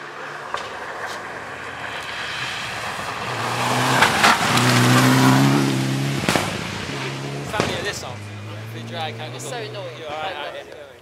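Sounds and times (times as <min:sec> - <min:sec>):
gravel spraying from tyres: 0:00.0 - 0:08.4
rally car engine approaching: 0:00.0 - 0:11.0.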